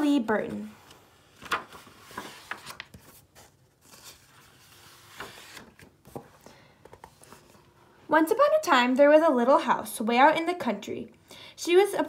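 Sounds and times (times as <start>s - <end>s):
paper pages rustling: 0.1s - 7.8s.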